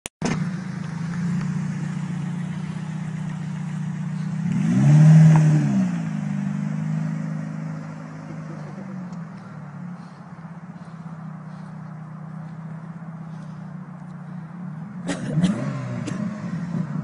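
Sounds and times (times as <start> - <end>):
car engine revving: 0.2 - 17.0.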